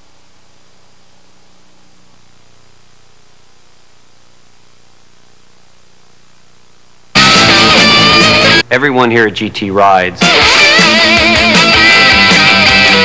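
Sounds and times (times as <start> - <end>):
faint high-pitched whine: 0.0 - 7.2
low mains hum: 0.0 - 10.3
tape hiss: 0.0 - 13.0.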